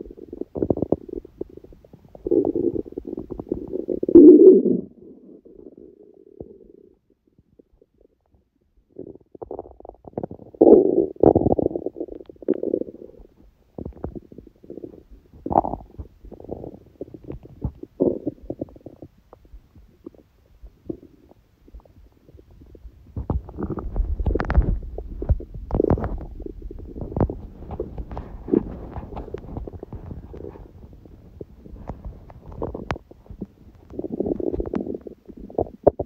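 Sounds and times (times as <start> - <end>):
stomach growling and gurgling: 0.0 - 36.0.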